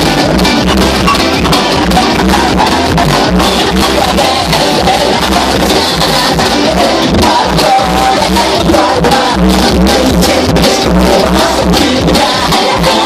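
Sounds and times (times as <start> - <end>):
loud dance music: 0.0 - 13.0.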